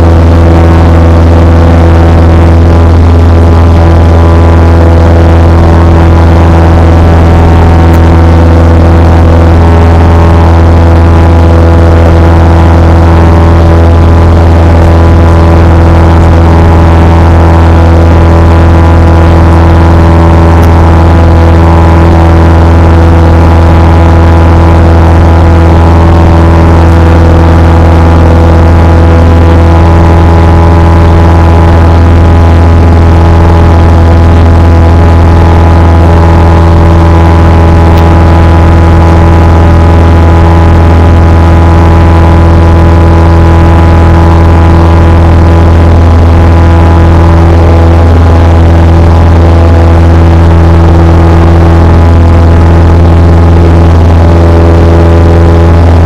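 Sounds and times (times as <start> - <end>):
airplane engine drone in cabin: 0.0 - 56.0.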